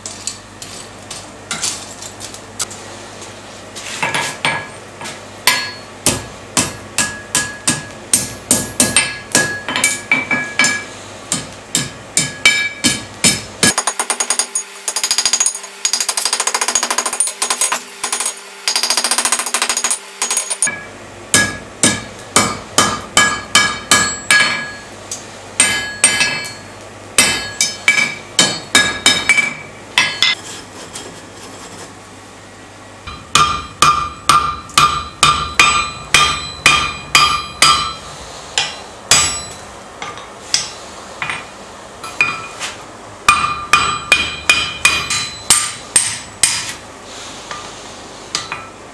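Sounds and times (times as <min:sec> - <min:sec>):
hammer striking hot steel: 0:04.0 - 0:30.4, 0:33.1 - 0:46.8, 0:48.3 - 0:48.7
ringing anvil tone: 0:05.5 - 0:06.0, 0:19.8 - 0:21.6, 0:23.2 - 0:24.9, 0:25.6 - 0:30.4, 0:33.1 - 0:39.7, 0:43.3 - 0:46.3.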